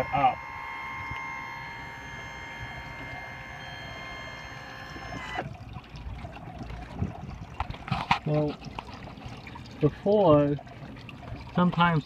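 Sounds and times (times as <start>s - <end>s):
electric motor whine: 0.0s - 5.5s
water trickling and dripping: 2.6s - 12.0s.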